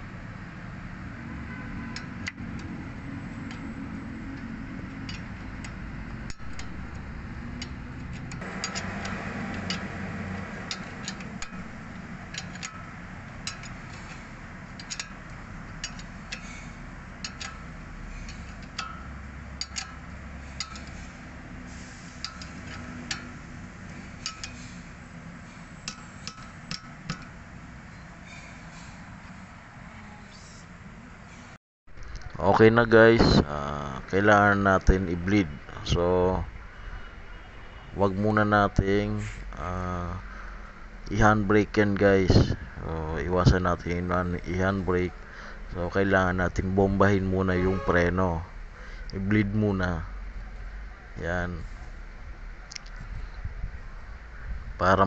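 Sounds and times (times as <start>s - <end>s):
wrench clinking on bolt: 4.4s - 21.1s, 22.0s - 24.8s, 25.8s - 27.4s.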